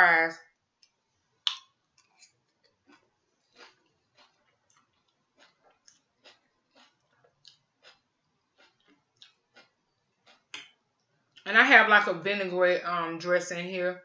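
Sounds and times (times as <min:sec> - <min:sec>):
chewing: 0:00.8 - 0:11.4.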